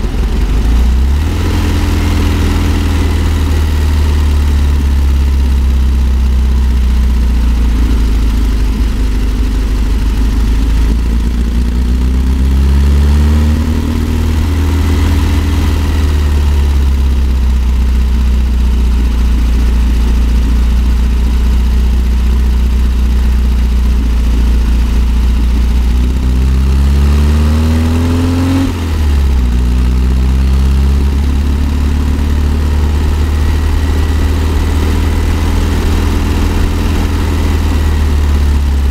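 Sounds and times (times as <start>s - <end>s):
road and wind noise: 0.0s - 38.9s
van engine pulling uphill: 0.0s - 38.9s.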